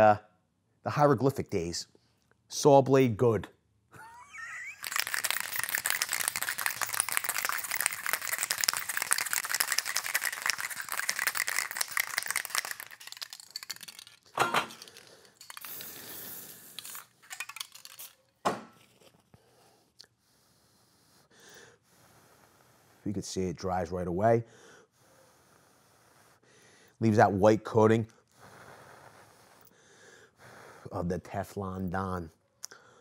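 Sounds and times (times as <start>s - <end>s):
aerosol can ball rattling: 4.4s - 18.2s.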